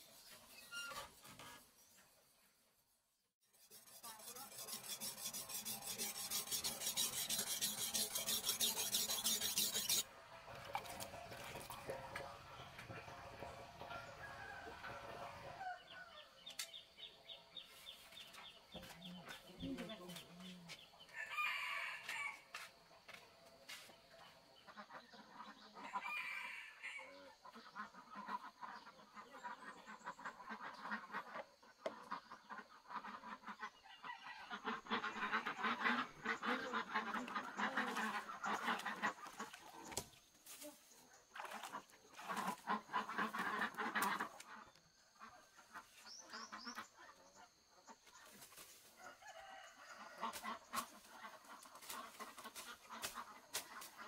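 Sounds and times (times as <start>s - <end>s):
chickens clucking: 27.0s - 40.7s, 41.3s - 54.0s.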